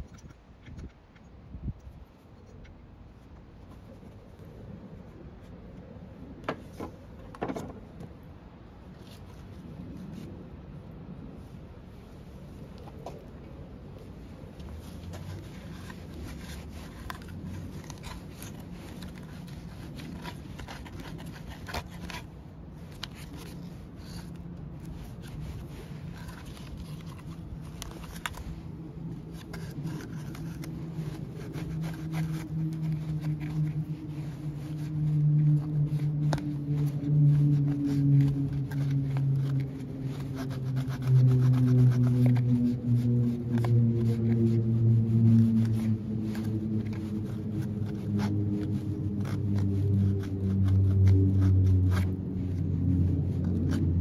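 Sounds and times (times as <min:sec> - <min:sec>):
low hum: 0:07.9 - 0:54.0
brush scrubbing plastic: 0:12.4 - 0:54.0.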